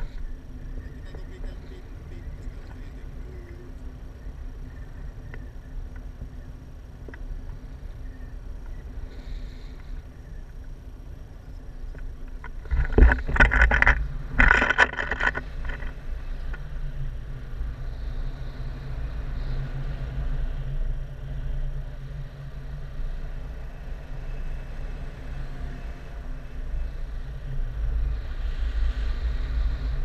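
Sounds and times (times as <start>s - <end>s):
rustling and buffeting bursts: 0.0s - 19.4s
wind rushing over microphone: 0.0s - 30.0s.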